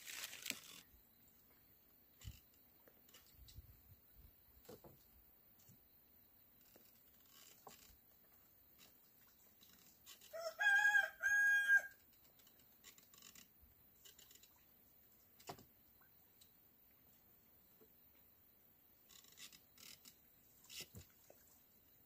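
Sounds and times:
rooster crowing: 0:10.3 - 0:12.0.

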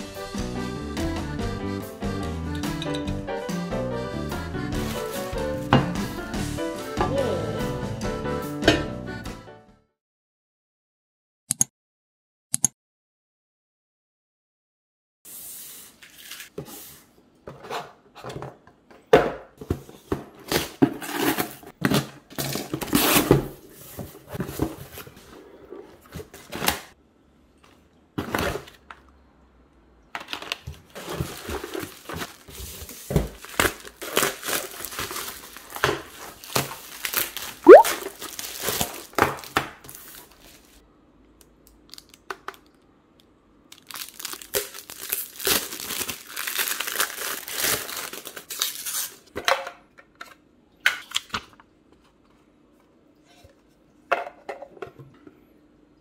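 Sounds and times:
packaging crinkling and tearing: 0:20.5 - 0:23.5, 0:30.2 - 0:40.8, 0:41.7 - 0:42.8, 0:43.7 - 0:49.3.

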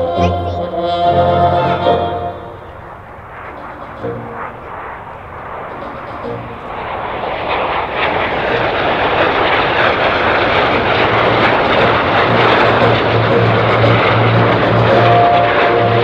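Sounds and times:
jet engine rushing overhead: 0:00.0 - 0:16.0
steady low hum: 0:00.0 - 0:16.0.

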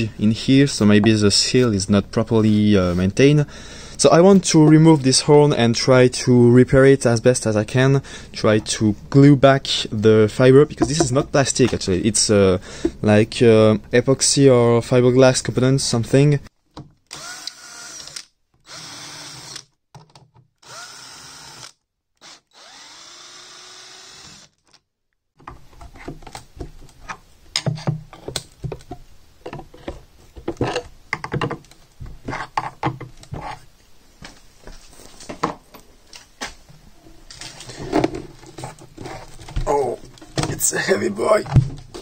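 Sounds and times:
cordless drill running: 0:17.1 - 0:19.6, 0:20.6 - 0:24.6.

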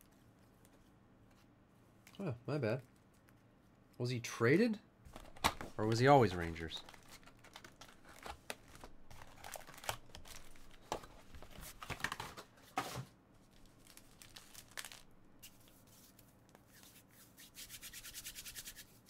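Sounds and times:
foil card packs crinkling: 0:05.1 - 0:12.5, 0:13.4 - 0:15.2.

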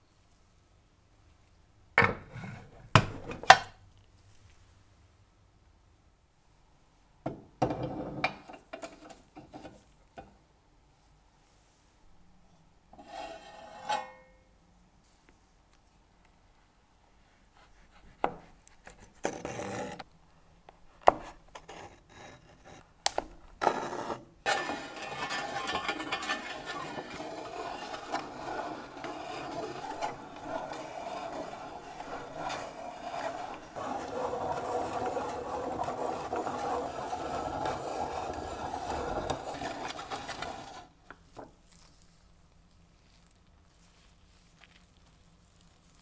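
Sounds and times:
cheese grater rasping scrape: 0:23.8 - 0:40.9.

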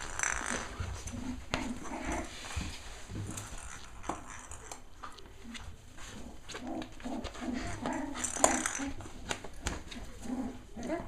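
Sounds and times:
puppies making low vocal sounds: 0:04.7 - 0:11.0.

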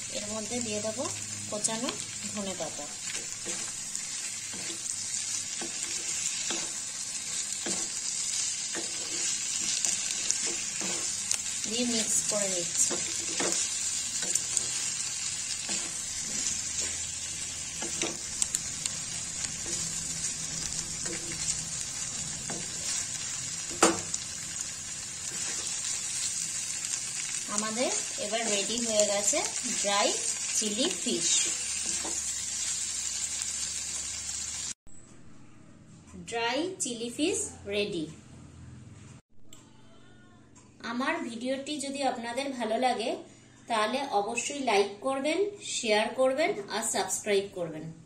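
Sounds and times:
food sizzling in a wok: 0:00.0 - 0:34.8
spatula scraping and knocking pan: 0:03.1 - 0:11.4, 0:12.7 - 0:14.9, 0:15.6 - 0:18.5, 0:30.8 - 0:32.4.

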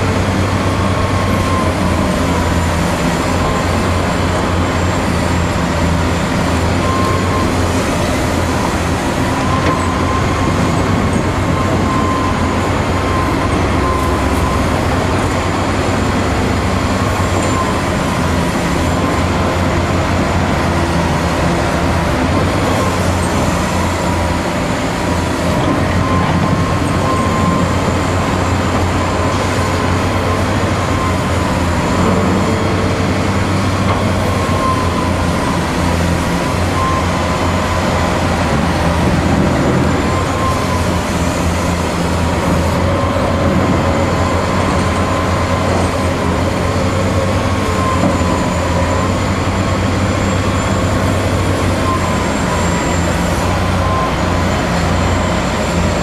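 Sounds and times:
excavator diesel engine under load: 0:00.0 - 0:56.0.

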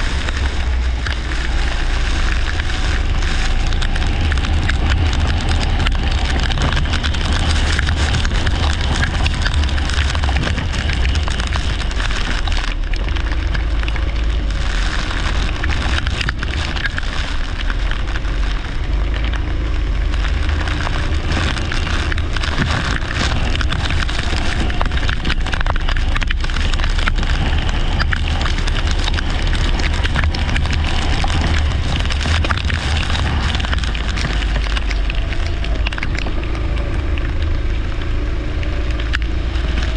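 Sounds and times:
crackling noise: 0:00.0 - 0:39.9
kart engine: 0:00.0 - 0:39.9
low rumble: 0:00.0 - 0:39.9.

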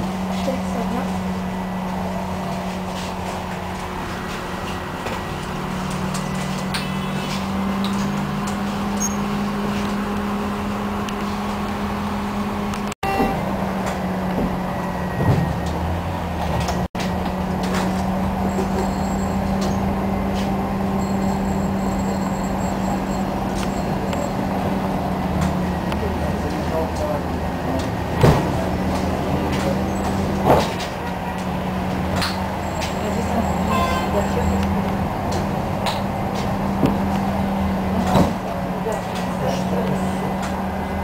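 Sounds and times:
tram running hum: 0:00.0 - 0:41.0
tram knock: 0:13.0 - 0:13.6.

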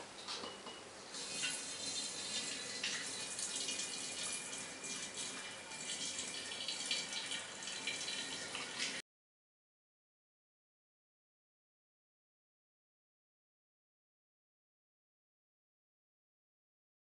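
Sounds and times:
liquid pouring into glass bottle: 0:01.2 - 0:09.0.

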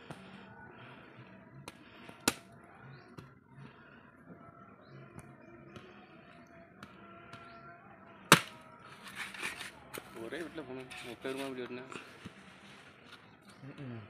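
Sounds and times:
machete chopping fruit: 0:02.2 - 0:02.5, 0:08.3 - 0:08.6.

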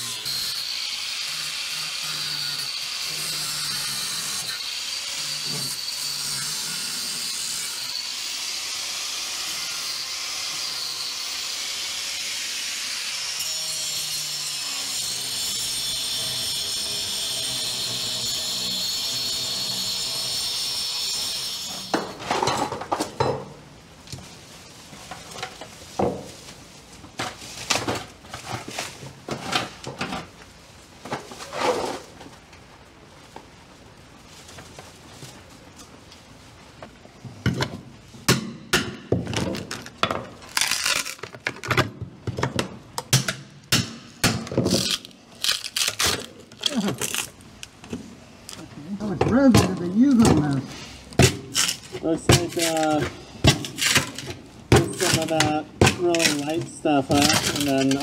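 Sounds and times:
plastic bag rustling: 0:23.9 - 0:36.8, 0:44.6 - 0:58.0.

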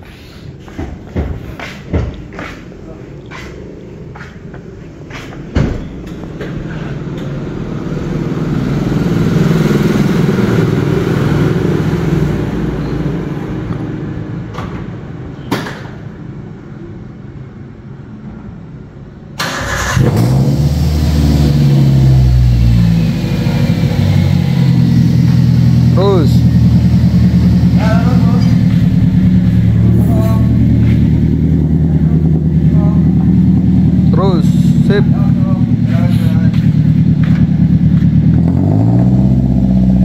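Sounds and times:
car engine deep exhaust note: 0:20.0 - 0:40.0.

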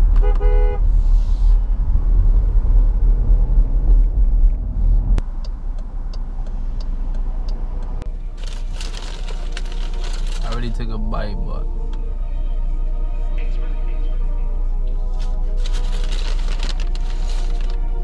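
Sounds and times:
engine and road rumble: 0:00.0 - 0:18.0
faint ticking: 0:05.2 - 0:08.0
short pitched tone: 0:10.8 - 0:11.9.

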